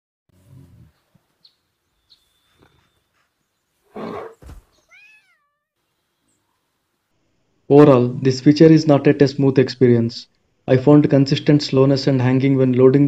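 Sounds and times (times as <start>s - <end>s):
short loud growl: 3.9s - 4.6s
cat meowing: 4.8s - 5.7s.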